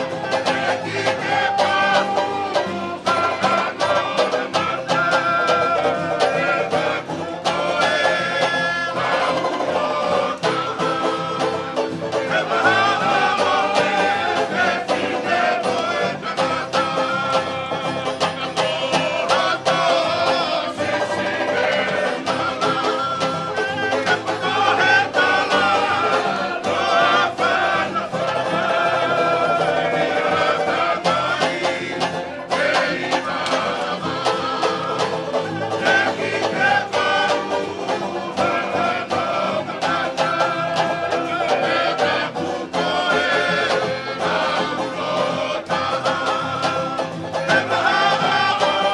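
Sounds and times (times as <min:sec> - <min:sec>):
acoustic guitar and banjo strumming: 0:00.0 - 0:48.9
voices singing: 0:00.0 - 0:48.9.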